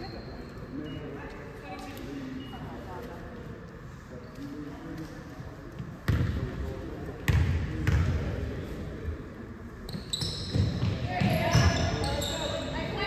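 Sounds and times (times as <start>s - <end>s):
basketball bouncing on hardwood: 6.1s - 6.3s, 7.3s - 8.1s.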